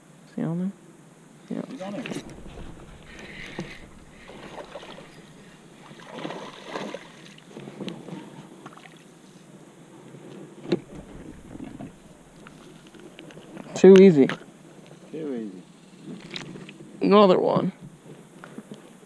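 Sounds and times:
fish splashing at water surface: 2.0 - 7.6.

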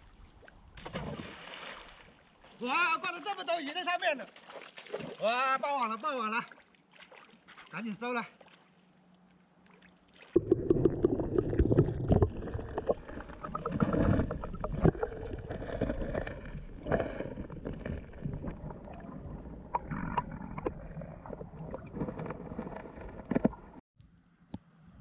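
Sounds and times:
muffled underwater river rumbling: 10.3 - 23.8.

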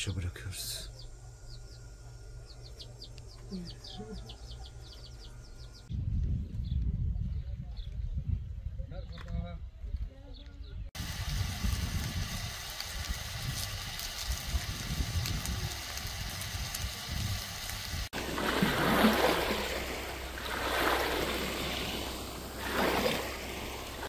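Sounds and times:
low rumbling noise: 11.0 - 24.0
small waves washing on sand: 13.4 - 24.0.

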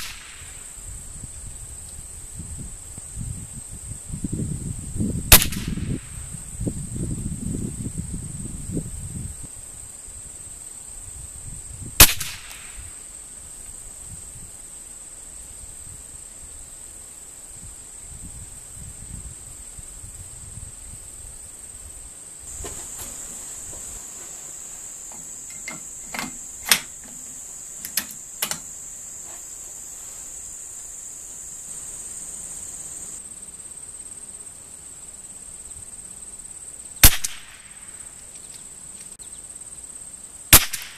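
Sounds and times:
faint sharp cracks: 0.0 - 0.6, 12.0 - 12.9, 37.0 - 39.1, 40.6 - 40.9
rifle shot: 0.0 - 0.6, 5.3 - 6.1, 12.0 - 12.8, 37.0 - 37.7, 40.6 - 40.9
insects chirring: 0.0 - 40.9.

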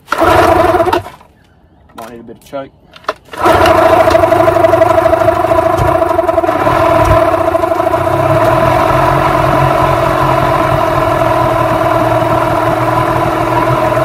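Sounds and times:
outboard motor idling: 0.0 - 1.1, 3.4 - 14.0.

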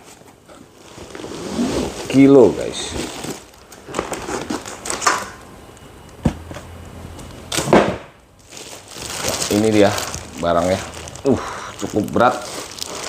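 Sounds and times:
package rustling and scraping: 0.0 - 5.3, 8.4 - 13.0.

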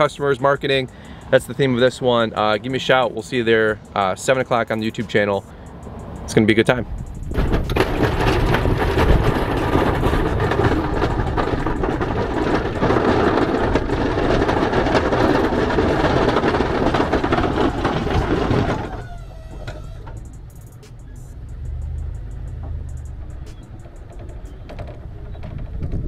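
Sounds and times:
snow and plow blade crackling: 0.0 - 26.0
truck running: 0.0 - 26.0
wind over microphone: 6.7 - 19.2, 24.5 - 26.0.

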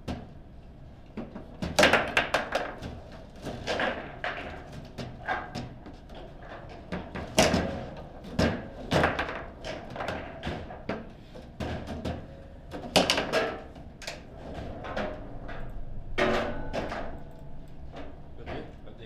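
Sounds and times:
foosball knocks and clacks: 1.2 - 17.2.

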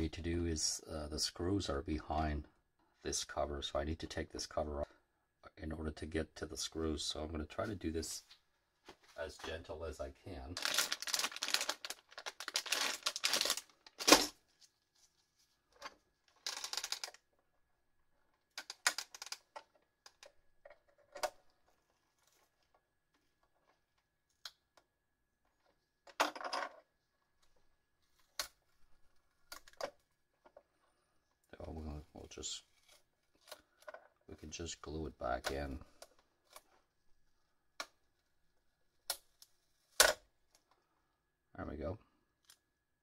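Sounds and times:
plastic bag crinkling: 10.6 - 14.4.

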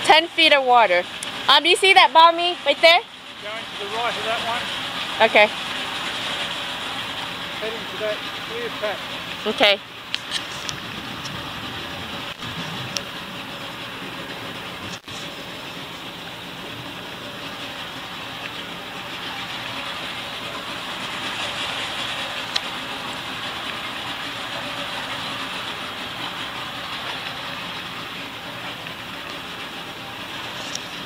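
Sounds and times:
low engine hum: 0.0 - 31.0
rush of wind and water: 8.0 - 31.0.

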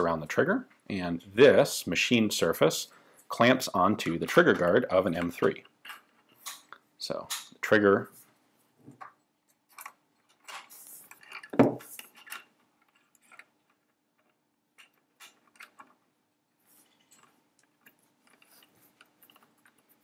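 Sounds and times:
small metal clicks and knocks: 8.9 - 16.0.

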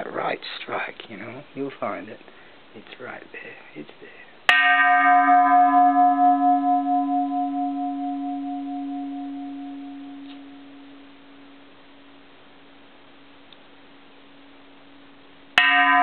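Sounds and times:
temple bell ringing: 4.5 - 12.2, 15.6 - 16.0.

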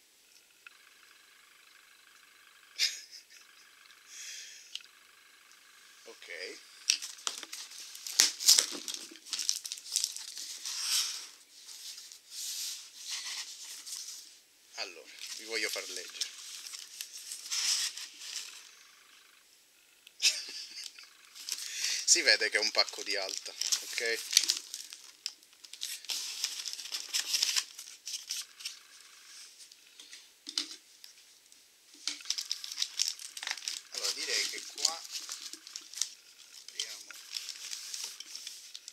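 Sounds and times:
cardboard and packing tape crinkling: 6.3 - 14.2, 15.1 - 18.6, 20.7 - 28.8, 32.0 - 38.9.

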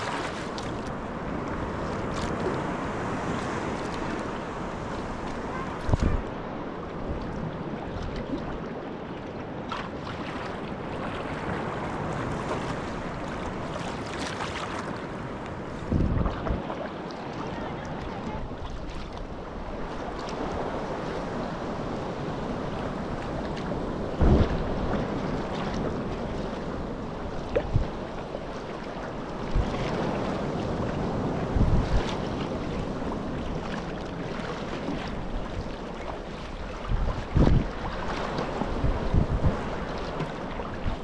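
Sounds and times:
water wash: 0.0 - 41.0
wind: 0.0 - 41.0
low kayak thumps: 24.2 - 25.0.

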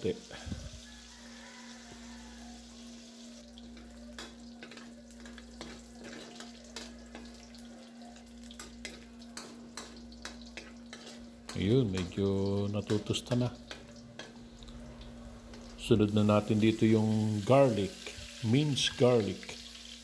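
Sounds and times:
meat sizzling in oil: 0.0 - 20.0
metal spatula scraping a pan: 4.2 - 7.7, 8.5 - 12.2.

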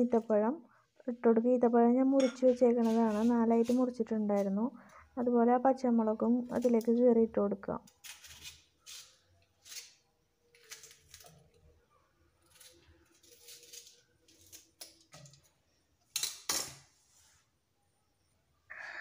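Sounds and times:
knife cutting chillies: 2.7 - 4.6, 6.4 - 7.0, 7.9 - 11.7, 12.4 - 15.1.

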